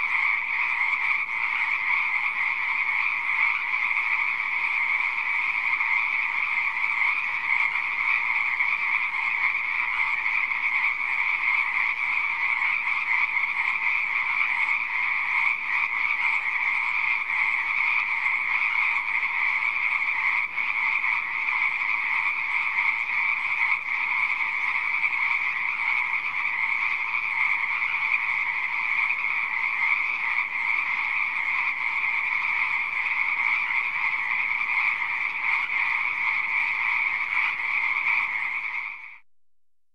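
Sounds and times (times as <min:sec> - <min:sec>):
frogs croaking: 0:00.0 - 0:39.2.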